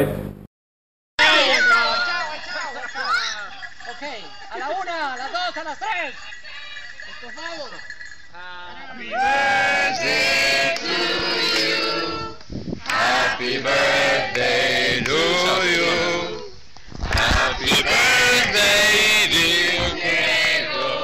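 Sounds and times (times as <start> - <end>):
group of people singing: 8.4 - 21.0.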